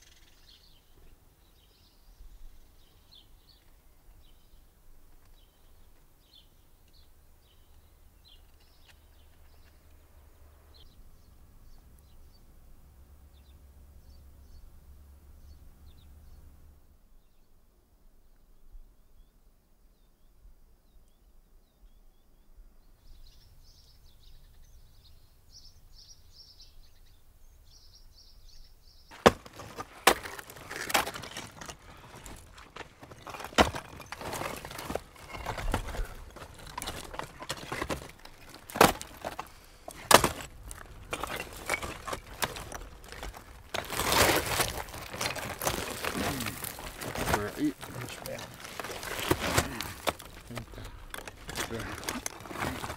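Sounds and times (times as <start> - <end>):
faint high bird chirps: 0.0 - 4.6
stones crunching scrape: 29.1 - 52.9
stones knocking and clacking: 29.1 - 52.9.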